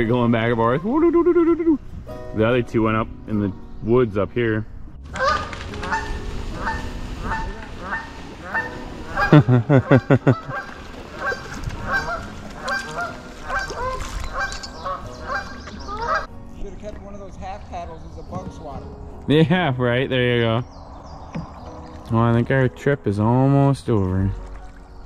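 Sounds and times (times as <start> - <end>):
geese honking: 5.1 - 16.3.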